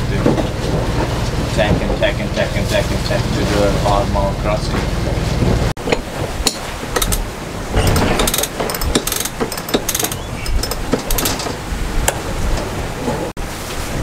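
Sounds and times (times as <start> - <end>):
winch ratcheting clicks: 6.5 - 12.2.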